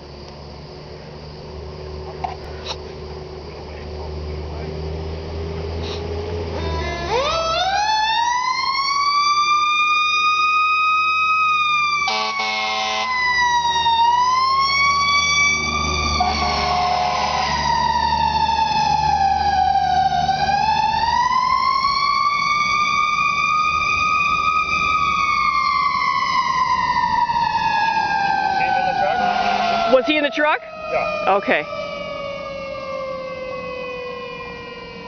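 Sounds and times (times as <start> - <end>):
truck engine rumble: 0.0 - 35.0
mechanical siren wailing: 6.0 - 35.0
air horn blasts: 12.1 - 13.1, 16.2 - 17.7, 29.0 - 30.6.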